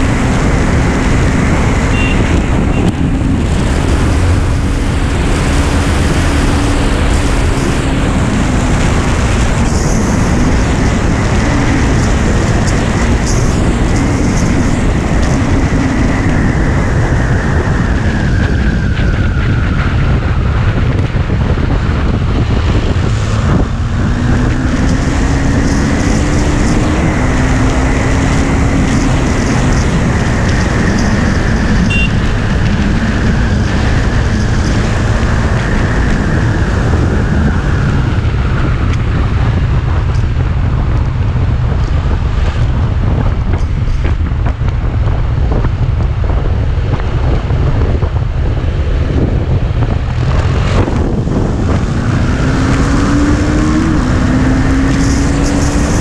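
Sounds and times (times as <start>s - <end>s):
motorcycle engine at speed: 0.0s - 56.0s
wind rush on microphone: 0.0s - 56.0s.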